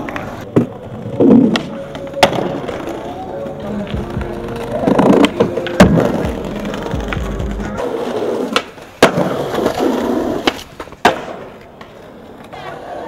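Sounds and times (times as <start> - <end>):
skateboard clacking on ground: 0.0 - 13.0
skateboard wheels rolling on paving: 0.0 - 13.0.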